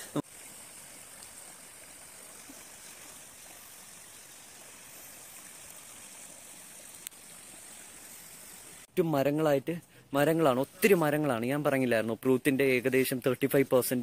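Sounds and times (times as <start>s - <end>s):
river flowing: 0.0s - 8.9s.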